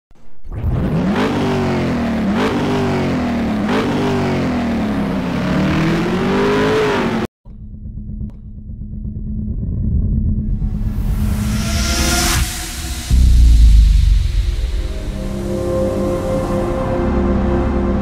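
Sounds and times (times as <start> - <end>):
car engine accelerating: 0.5 - 18.0.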